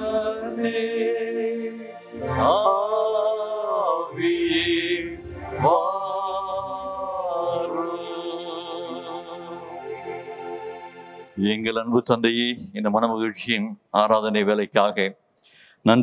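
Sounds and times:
men singing a hymn: 0.0 - 10.2.

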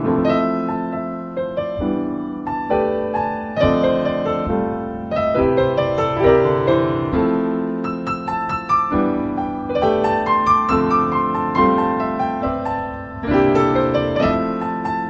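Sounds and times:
gentle piano melody: 0.0 - 15.0.

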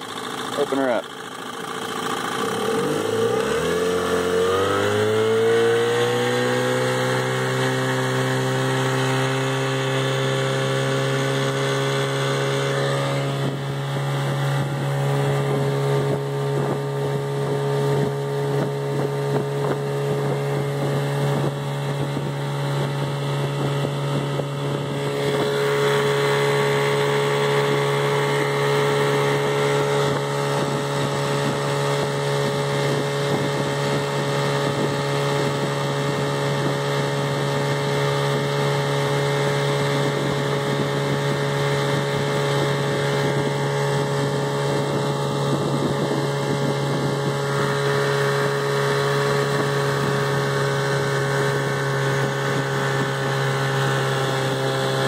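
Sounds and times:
outboard motor at full throttle: 0.0 - 55.0.

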